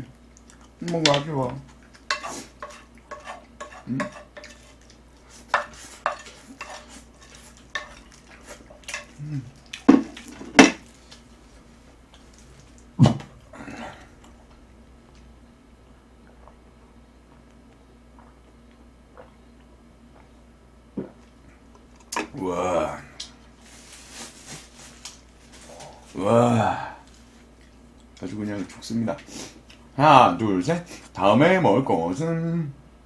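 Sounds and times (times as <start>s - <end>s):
utensils scraping ceramic plate: 2.1s - 4.7s, 5.5s - 9.1s.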